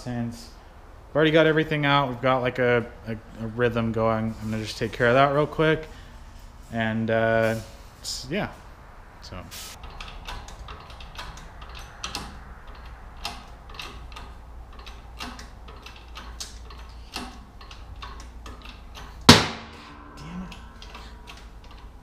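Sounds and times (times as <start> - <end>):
loud metal crack with ring: 19.2 - 22.0.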